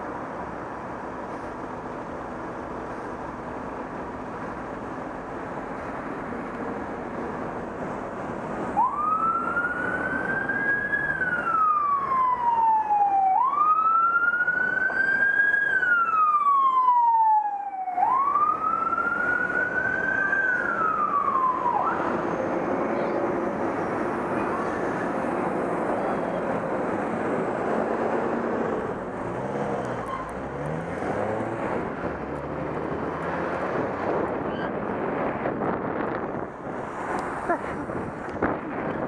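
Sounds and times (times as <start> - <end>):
road traffic noise: 0.0 - 39.0
emergency vehicle siren wailing: 8.6 - 29.3.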